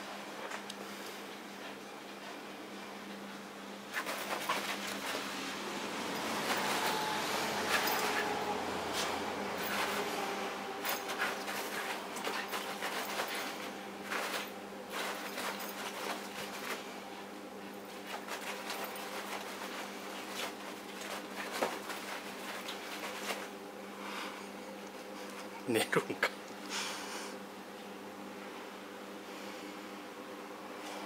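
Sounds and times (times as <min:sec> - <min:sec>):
steady background hum: 0:00.0 - 0:31.0
fabric rustling and scuffing: 0:06.2 - 0:17.0, 0:17.7 - 0:23.6.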